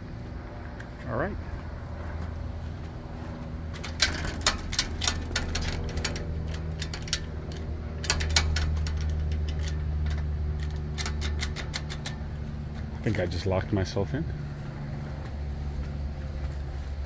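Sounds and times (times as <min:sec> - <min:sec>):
low hum: 0:00.0 - 0:17.0
gate latch clicking and rattling: 0:03.8 - 0:12.3.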